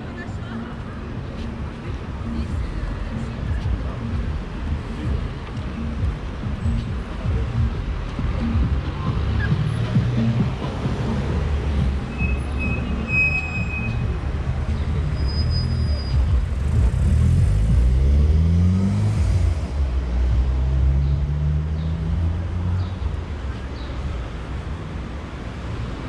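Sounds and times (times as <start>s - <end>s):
engines idling at intersection: 0.0s - 26.0s
vehicle pulling away: 14.6s - 22.8s.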